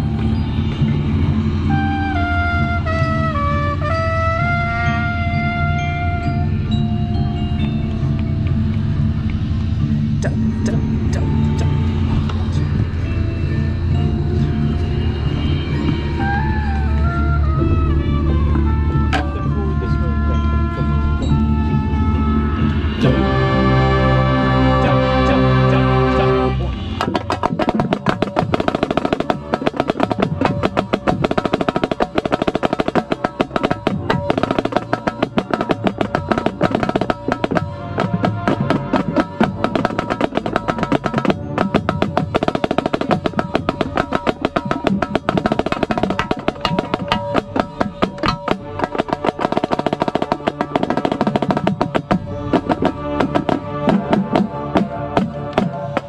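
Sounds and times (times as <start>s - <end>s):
brass sustained chords: 0.0s - 27.1s, 32.7s - 40.3s, 45.4s - 56.0s
marching snare drum rolls: 23.0s - 56.0s.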